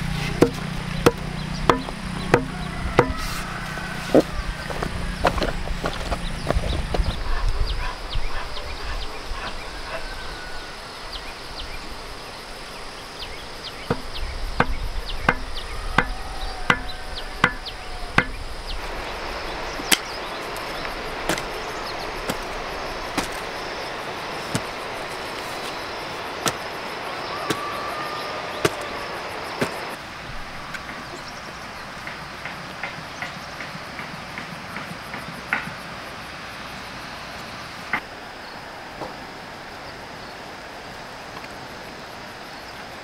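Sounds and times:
hoe blade chopping soil: 0.0s - 4.3s, 21.2s - 21.6s, 22.2s - 23.6s, 24.4s - 25.8s, 26.4s - 26.8s, 28.6s - 28.9s, 29.6s - 30.0s
insects chorus: 0.0s - 43.0s.

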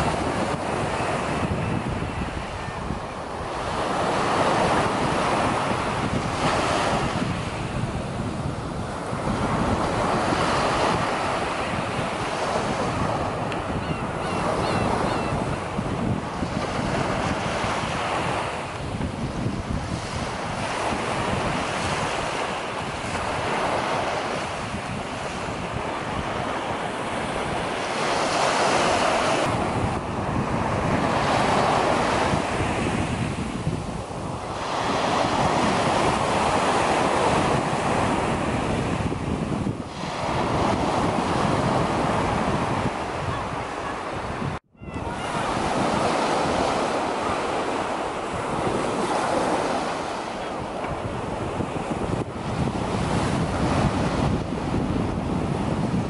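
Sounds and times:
surf breaking on beach: 0.0s - 56.0s
wind rumbling on microphone: 0.0s - 56.0s
faint gull calls: 13.5s - 15.6s, 44.8s - 45.5s.

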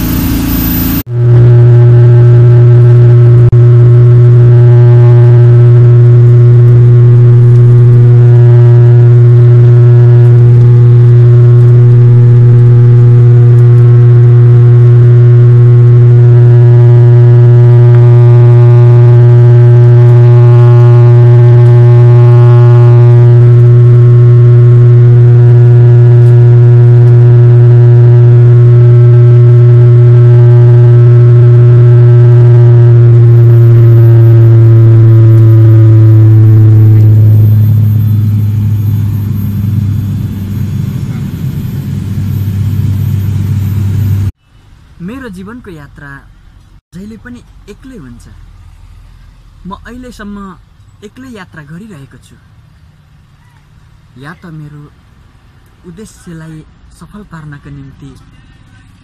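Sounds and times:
propeller drone in cabin: 0.0s - 44.4s.

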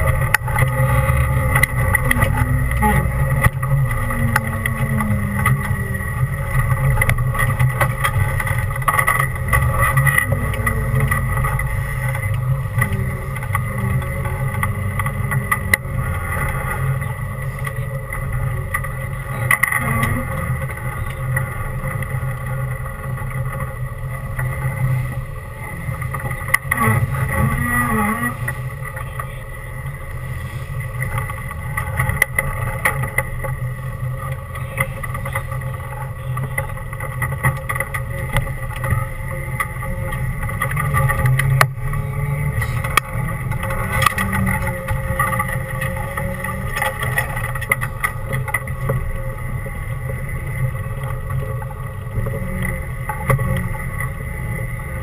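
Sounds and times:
off-road vehicle engine: 0.0s - 55.0s.

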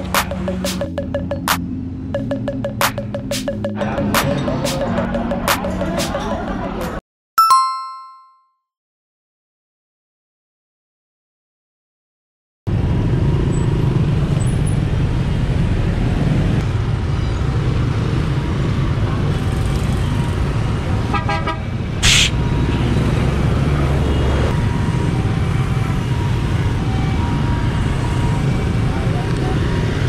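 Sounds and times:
motorbike and car traffic: 0.0s - 7.0s, 12.7s - 30.0s
loud hiss-like burst: 22.0s - 22.4s.

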